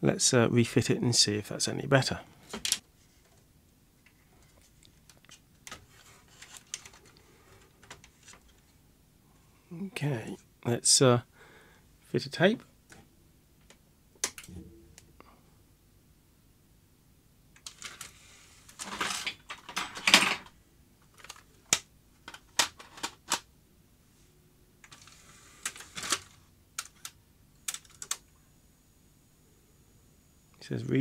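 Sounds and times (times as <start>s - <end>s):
scraping handling noise: 17.7s - 20.5s
plastic clicks and clattering: 18.7s - 23.5s.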